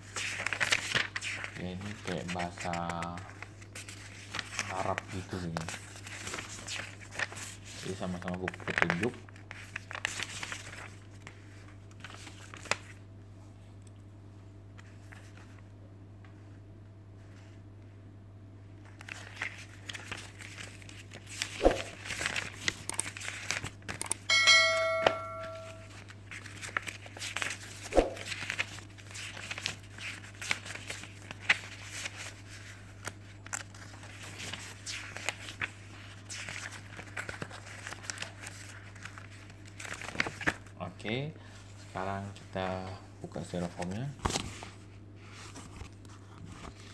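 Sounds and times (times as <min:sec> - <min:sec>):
paper rustling and crinkling: 0:00.0 - 0:13.0, 0:14.8 - 0:15.6, 0:18.8 - 0:24.2, 0:25.2 - 0:40.8, 0:43.3 - 0:46.9
bell-like ding: 0:24.3 - 0:25.9.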